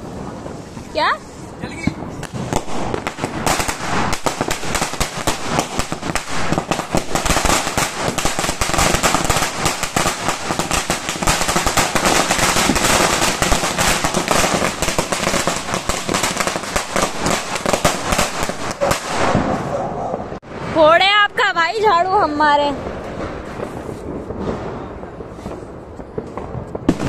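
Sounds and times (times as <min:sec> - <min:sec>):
firecrackers popping: 0:00.0 - 0:27.0.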